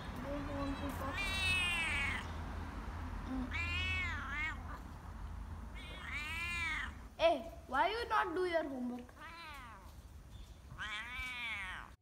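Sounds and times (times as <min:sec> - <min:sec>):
cat meowing: 0:00.6 - 0:02.3, 0:03.3 - 0:04.8, 0:05.7 - 0:07.0, 0:09.2 - 0:09.9, 0:10.7 - 0:12.0.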